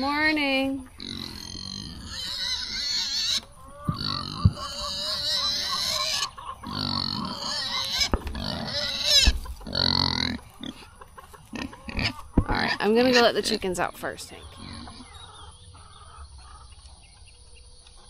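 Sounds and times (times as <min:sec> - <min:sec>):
pig grunting: 0:01.0 - 0:13.2, 0:14.5 - 0:15.2.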